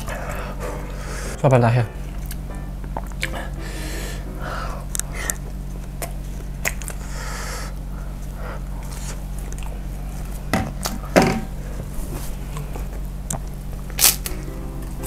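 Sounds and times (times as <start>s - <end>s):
low steady hum: 0.0s - 15.0s
person chewing food: 2.1s - 3.5s, 4.9s - 11.0s
wet mouth clicks: 6.0s - 7.0s.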